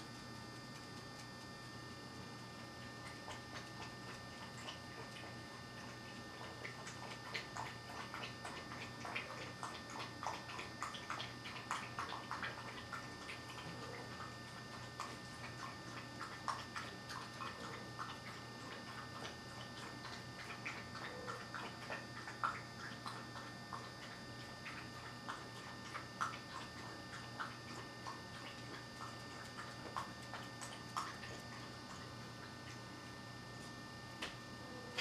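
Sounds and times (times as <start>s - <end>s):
faint steady hum: 0.0s - 35.0s
puppies eating from plastic bowl: 0.0s - 35.0s.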